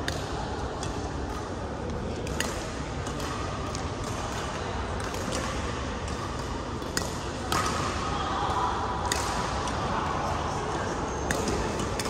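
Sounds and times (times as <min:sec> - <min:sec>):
large room hum: 0:00.0 - 0:12.0.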